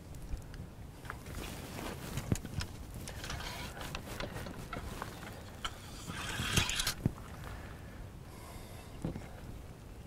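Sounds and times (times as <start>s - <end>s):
wind rumble on microphone: 0.0s - 10.0s
cleaning rod scraping in barrel: 3.1s - 7.0s.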